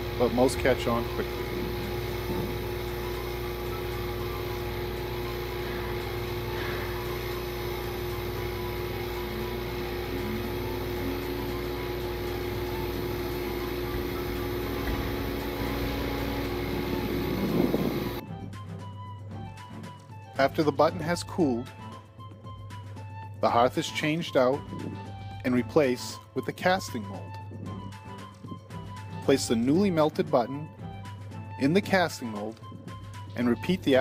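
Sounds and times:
lower held tone: 0.0s - 18.2s
furnace electrical hum and buzz: 0.0s - 18.3s, 20.2s - 34.0s.

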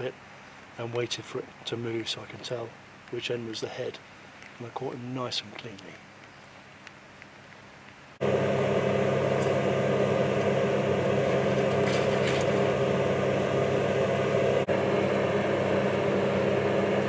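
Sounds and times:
steady machine hum: 7.7s - 17.0s.

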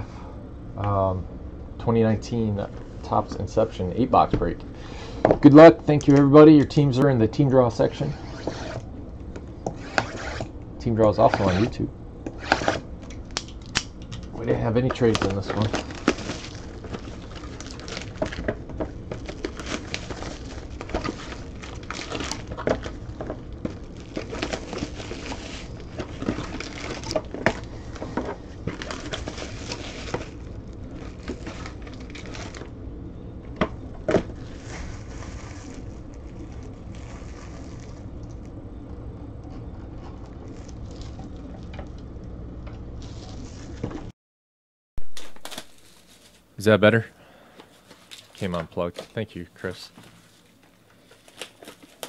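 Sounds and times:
steady low hum: 0.0s - 44.1s, 45.0s - 52.0s
plastic wrapping crinkling: 14.9s - 32.7s, 34.0s - 38.5s, 39.9s - 42.0s, 45.0s - 46.5s, 47.7s - 49.2s, 50.0s - 52.0s.

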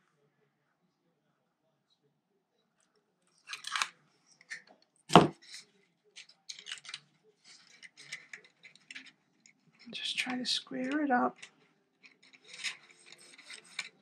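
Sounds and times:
paper rustling and scraping: 5.4s - 11.5s, 12.1s - 14.0s.

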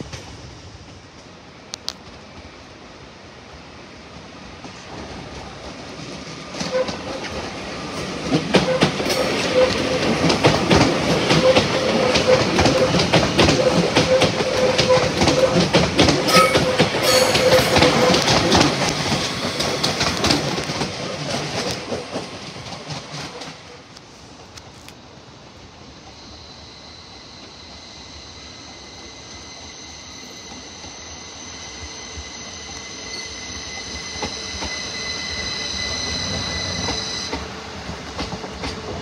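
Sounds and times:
steady train hum: 0.0s - 39.0s
train wheels clattering over rail joints: 4.6s - 23.8s, 36.8s - 39.0s.

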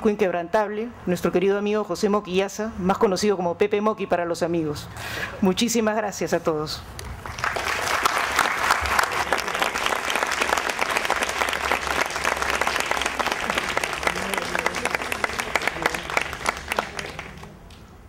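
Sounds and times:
audience applauding: 7.2s - 17.8s.

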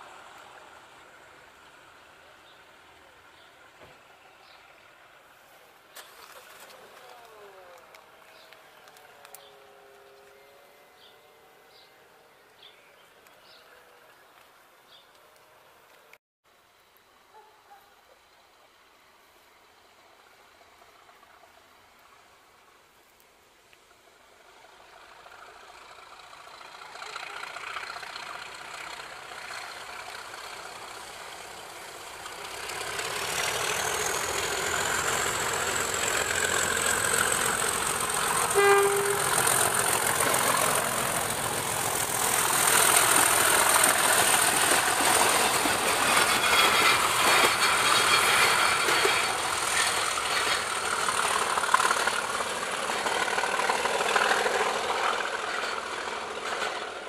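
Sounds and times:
diesel locomotive passing: 0.0s - 14.2s, 19.4s - 22.8s, 23.9s - 57.0s
train horn note: 38.3s - 40.0s
high whistle: 38.5s - 39.4s.

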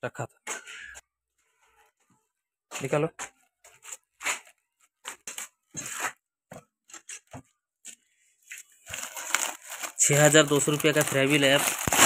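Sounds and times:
plastic wrapping crinkling: 8.4s - 12.0s.

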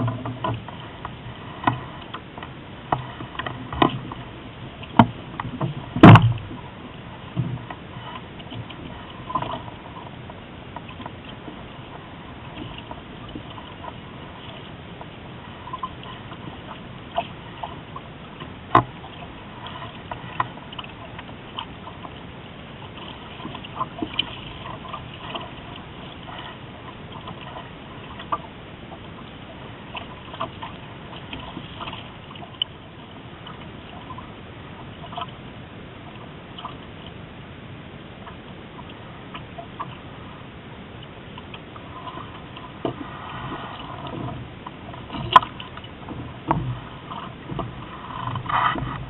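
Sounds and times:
light clicks and knocks: 0.0s - 4.2s, 18.4s - 22.2s
water sloshing along hull: 0.0s - 49.0s.

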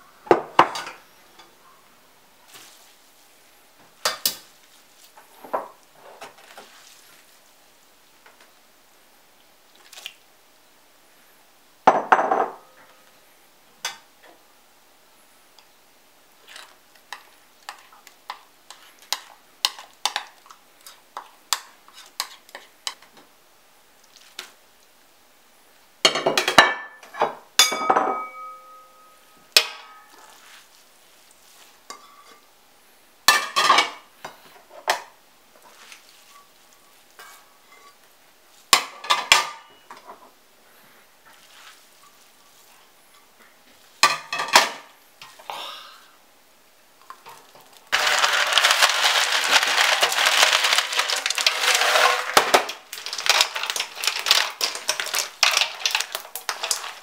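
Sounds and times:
spoon scraping stockpot: 16.4s - 23.1s.

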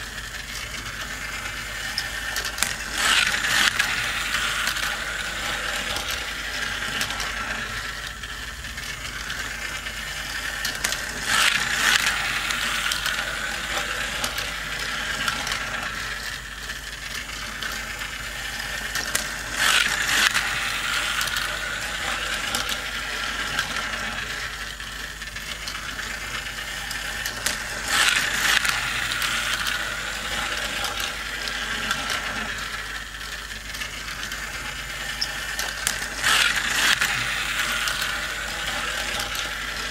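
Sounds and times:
toy race track whirring and clicking: 0.0s - 39.9s.

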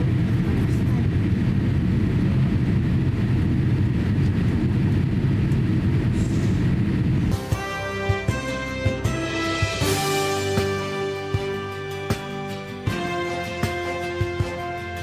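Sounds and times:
aircraft cabin engine rumble: 0.0s - 12.1s
music: 7.3s - 15.0s.

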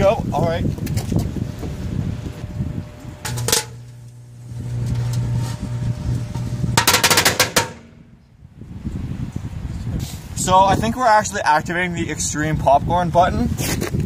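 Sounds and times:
microwave oven hum: 1.2s - 8.3s
firecrackers banging: 2.8s - 8.1s.

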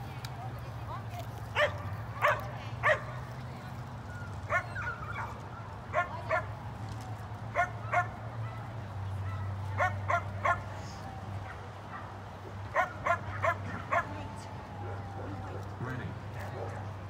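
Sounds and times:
dog barking: 1.6s - 3.1s, 7.6s - 10.7s, 11.5s - 14.2s.

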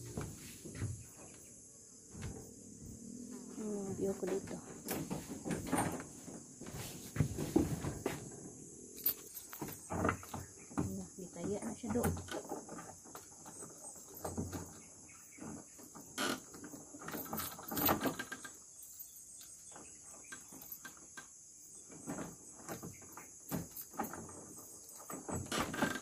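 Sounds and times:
high insect buzz: 0.0s - 26.0s
padlock and chain rattling: 8.7s - 10.6s, 15.8s - 21.2s, 23.4s - 26.0s.

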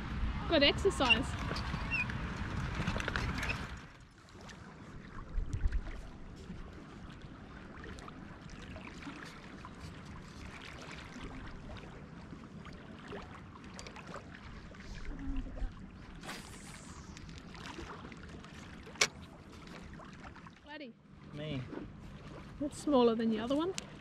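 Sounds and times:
water lapping against rocks: 0.9s - 20.6s.

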